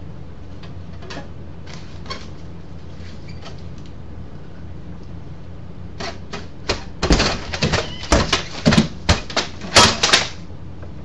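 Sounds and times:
mail slot flap clacking: 6.0 - 10.4.

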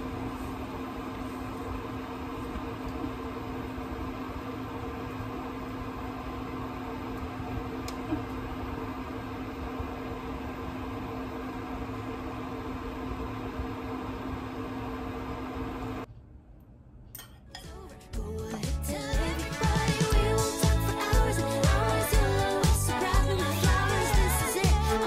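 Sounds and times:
cooling fan whirring: 0.0 - 25.0
electrical hum: 0.0 - 25.0.

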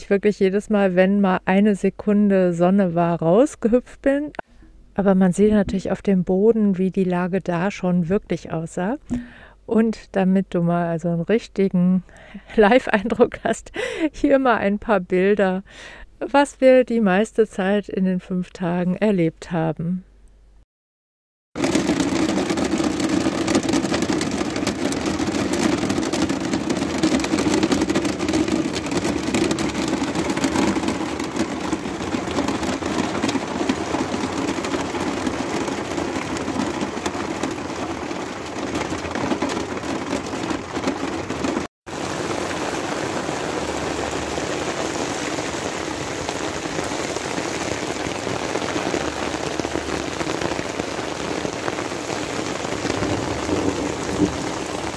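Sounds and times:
heavy rain on a van roof: 21.6 - 54.9.

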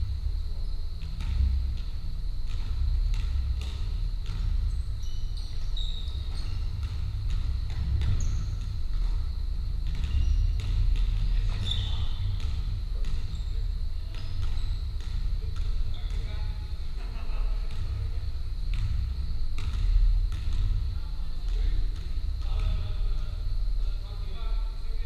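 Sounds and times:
steady low rumble: 0.0 - 25.0
basketball bouncing on wooden floor: 1.0 - 16.9, 17.6 - 23.0
sneakers squeaking on court: 2.5 - 16.8.

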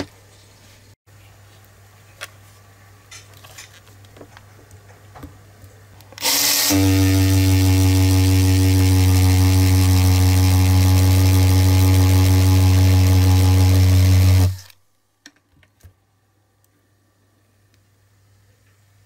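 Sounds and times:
cordless drill hammering: 6.2 - 14.7.

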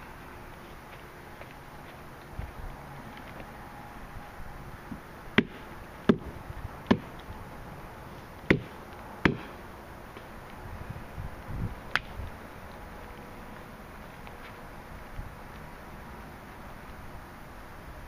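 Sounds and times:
axe chopping wood: 5.4 - 7.3, 8.4 - 9.6.

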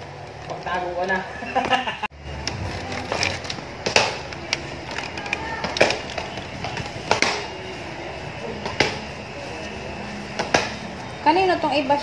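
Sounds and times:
plastic bags crinkling: 2.3 - 7.7.

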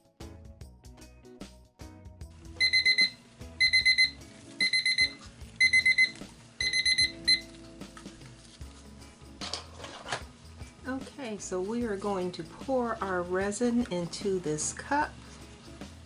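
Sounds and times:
kitchen timer beeping: 2.6 - 7.5.

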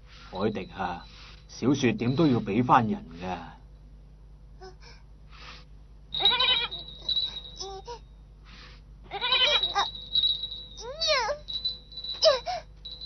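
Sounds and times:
young goat bleating: 6.2 - 6.8, 9.1 - 9.9.

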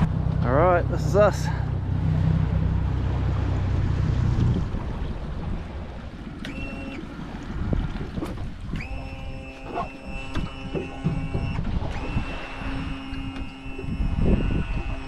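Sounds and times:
boat engine rumble: 0.0 - 15.0
high whine: 8.6 - 15.0.

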